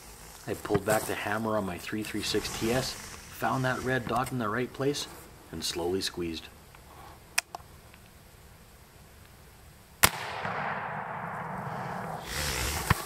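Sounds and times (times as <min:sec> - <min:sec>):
steady noise: 0:00.0 - 0:13.0
rifle shot: 0:10.0 - 0:13.0.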